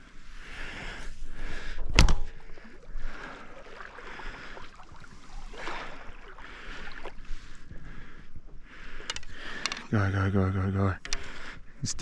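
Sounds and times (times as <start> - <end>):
water sloshing around wading legs: 1.1 - 7.8.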